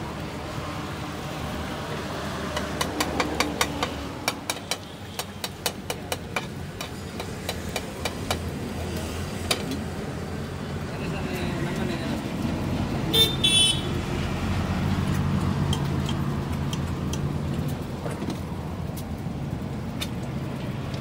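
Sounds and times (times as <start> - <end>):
metal spatula tapping a pan: 2.6 - 8.5.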